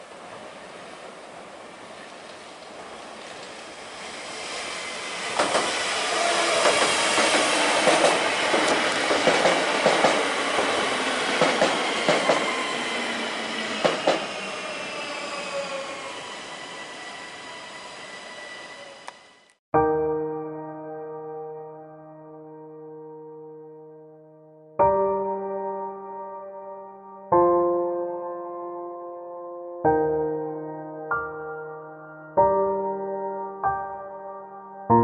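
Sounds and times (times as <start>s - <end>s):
high squeal: 4.0s - 8.5s, 11.8s - 19.5s
train wheels clicking over rail joints: 5.3s - 12.7s, 13.8s - 14.5s.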